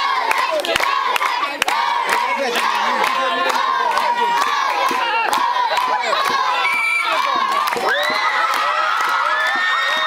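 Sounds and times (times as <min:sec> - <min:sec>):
children shouting and cheering: 0:00.0 - 0:10.0.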